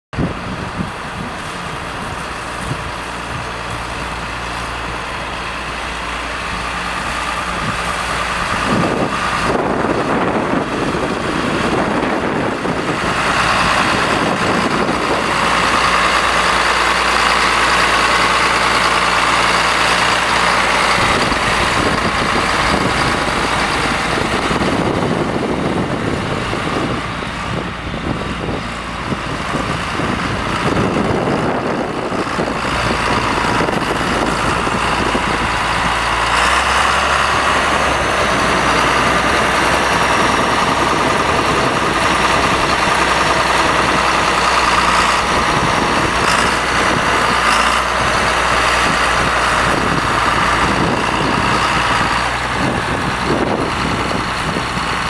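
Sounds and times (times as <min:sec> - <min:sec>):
tractor diesel engine running: 0:00.1 - 0:55.0.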